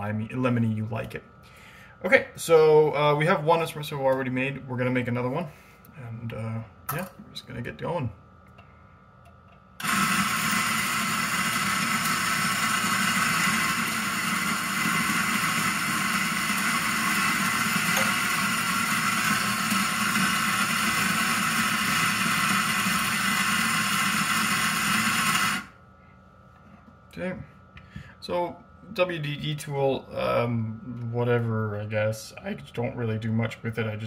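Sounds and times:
espresso grinder grinding coffee beans: 0:09.8 - 0:25.8.

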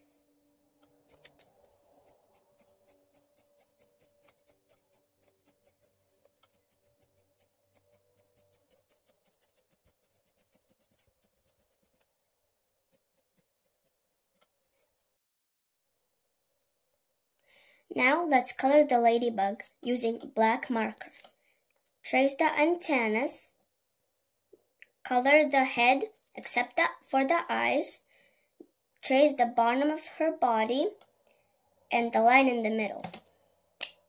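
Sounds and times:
marker drawing on paper: 0:00.6 - 0:15.0.

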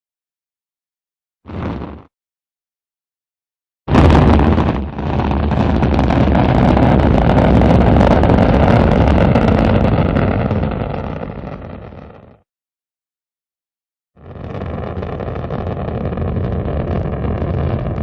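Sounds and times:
rocket engine rushing: 0:03.9 - 0:11.9, 0:14.5 - 0:18.0.

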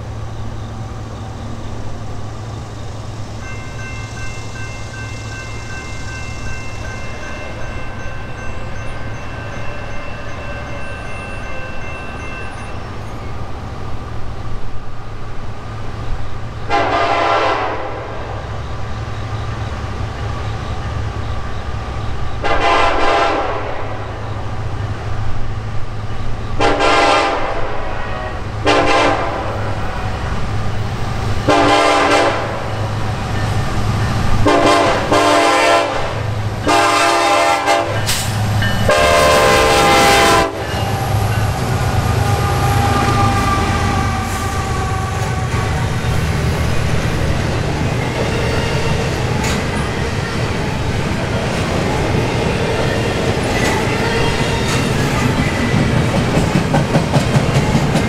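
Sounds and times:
locomotive air horn blasts: 0:16.7 - 0:18.2, 0:22.4 - 0:24.0, 0:26.6 - 0:30.2, 0:31.5 - 0:32.6, 0:34.4 - 0:38.2, 0:38.9 - 0:46.0
locomotive engine rumble: 0:28.4 - 0:58.0.

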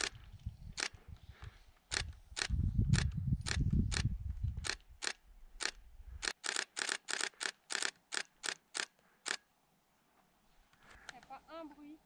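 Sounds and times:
camera shutter firing: 0:00.8 - 0:01.0, 0:01.9 - 0:09.4.

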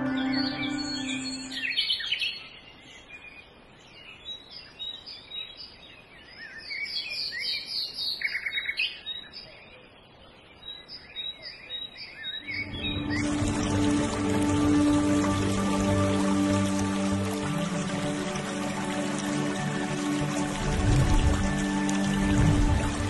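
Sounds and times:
music: 0:00.0 - 0:01.8, 0:12.5 - 0:23.0
birds chirping and whistling: 0:00.0 - 0:02.4.

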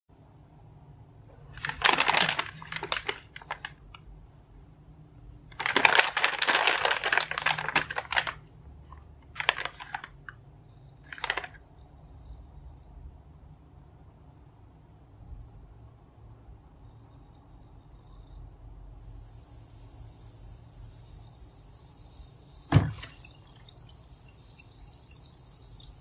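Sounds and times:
plastic packets crinkling: 0:01.5 - 0:03.8, 0:05.5 - 0:08.4, 0:09.4 - 0:10.2, 0:11.1 - 0:11.6.

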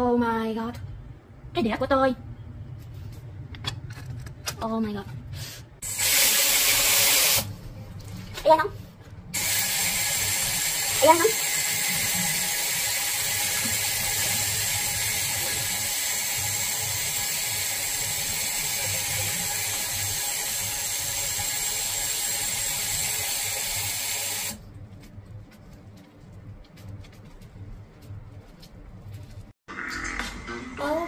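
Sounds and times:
tap water running into sink: 0:09.4 - 0:15.3.

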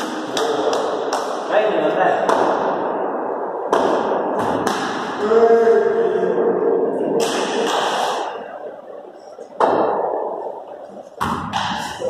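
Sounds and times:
cricket bat hitting ball with echo: 0:02.2 - 0:02.9, 0:03.6 - 0:05.2, 0:11.2 - 0:12.0.

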